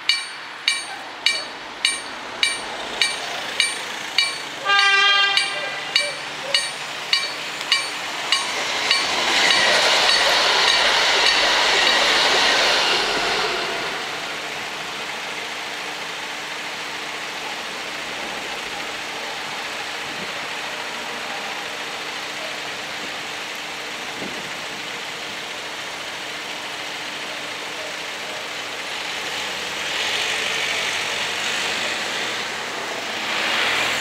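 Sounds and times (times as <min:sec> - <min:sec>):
cars passing close by: 0:00.0 - 0:16.0, 0:29.2 - 0:34.0
car engines idling: 0:00.0 - 0:29.8.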